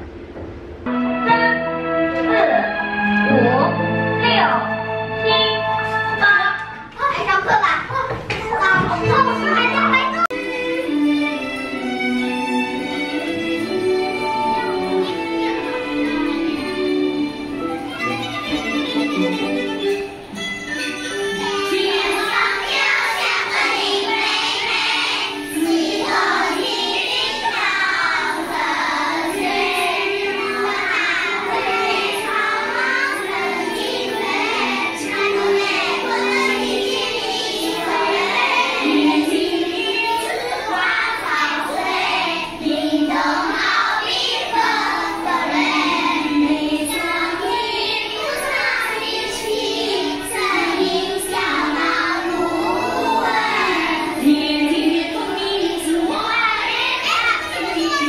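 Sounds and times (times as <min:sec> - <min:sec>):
children singing in unison: 0:21.1 - 0:58.0.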